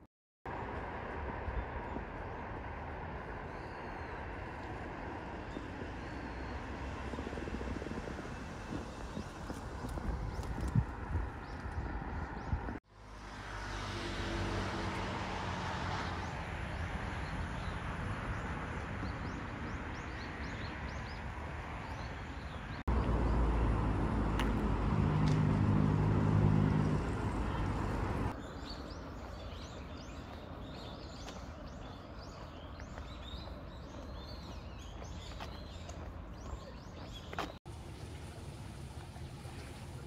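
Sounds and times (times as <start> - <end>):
traffic hum: 0.5 - 40.0
engine passing: 5.2 - 21.8, 22.8 - 28.4
birds chirping: 26.4 - 37.6.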